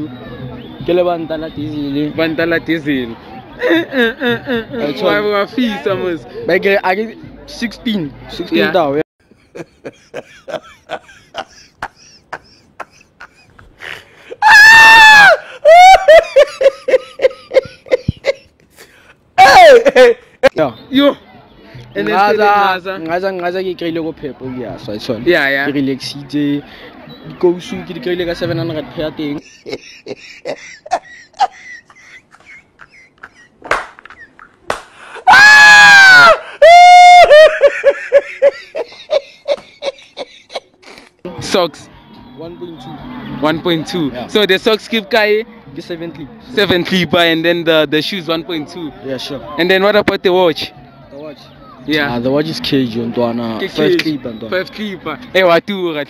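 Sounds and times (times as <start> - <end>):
man laughing hysterically: 9.5 - 18.5, 19.4 - 20.5, 29.4 - 34.5, 36.2 - 41.1.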